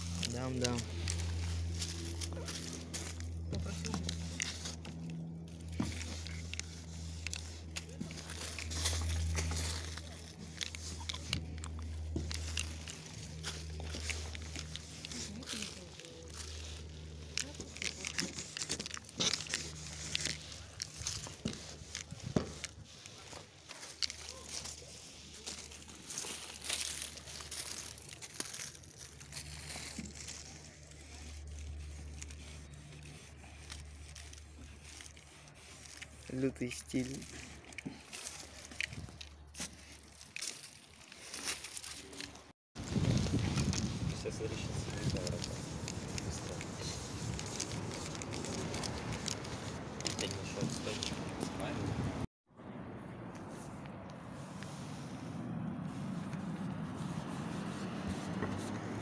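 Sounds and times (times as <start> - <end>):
marker scraping on metal: 0.0 - 25.9, 29.1 - 40.1, 53.6 - 59.0.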